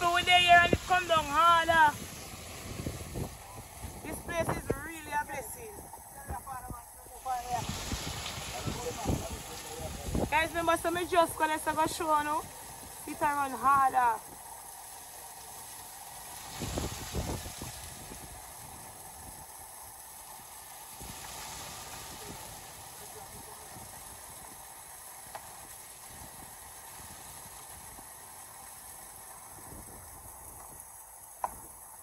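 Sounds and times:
waterfall rushing: 0.0 - 32.0.

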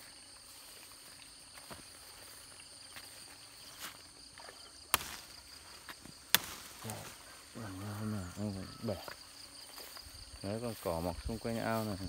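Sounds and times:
crickets trilling: 0.0 - 12.0
leaf stalks snapping: 4.9 - 7.2.

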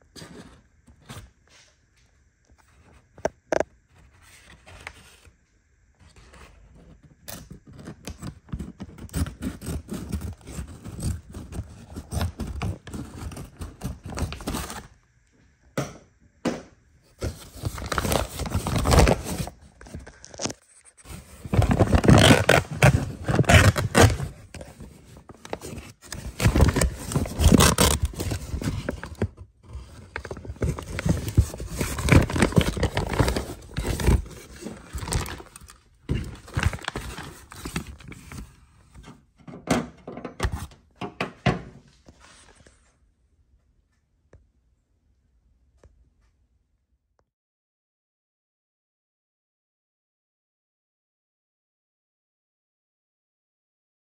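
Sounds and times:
packaging scraping and rustling: 6.0 - 14.9, 17.1 - 39.1.

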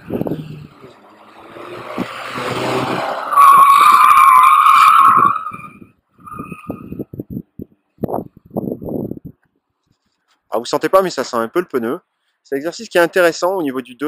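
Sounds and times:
car engine approaching: 0.0 - 7.1
tyres squealing: 0.8 - 7.0.

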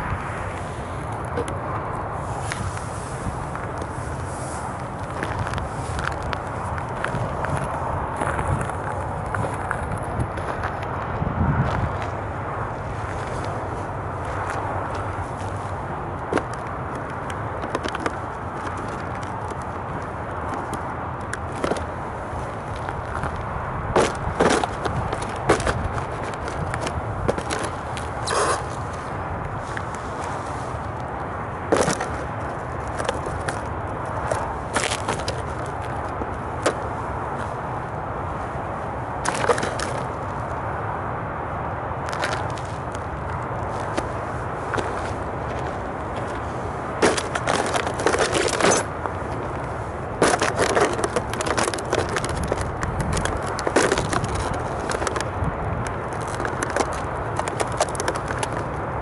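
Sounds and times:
low wind rumble on microphone: 0.0 - 59.0
sneakers crunching on gravel: 0.2 - 38.2, 42.0 - 58.8
rasping scrape on gravel: 24.0 - 29.1, 43.8 - 55.3.

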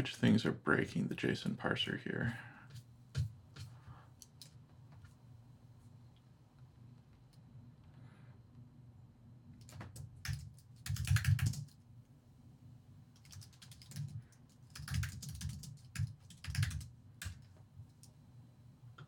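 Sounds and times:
computer keyboard typing: 9.6 - 11.8, 13.2 - 17.5.

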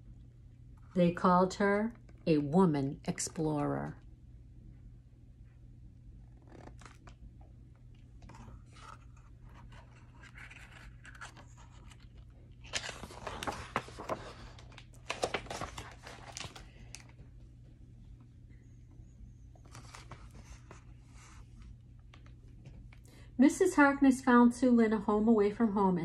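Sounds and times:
paper page rustling: 6.4 - 7.2, 8.2 - 17.2, 19.6 - 22.4.

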